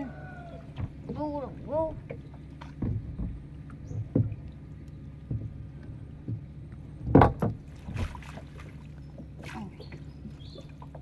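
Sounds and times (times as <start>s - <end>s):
steady low hum: 0.0s - 11.0s
water sloshing and splashing: 0.0s - 11.0s
knocks: 6.2s - 8.1s.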